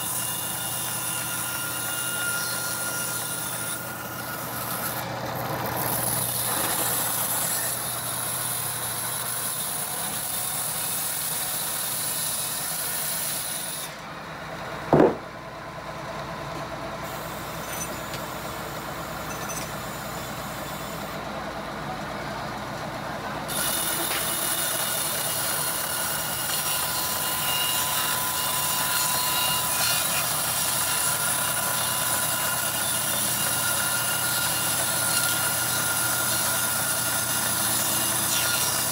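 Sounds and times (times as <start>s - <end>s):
band saw mechanical din: 0.0s - 8.7s, 14.9s - 15.5s, 23.4s - 38.9s.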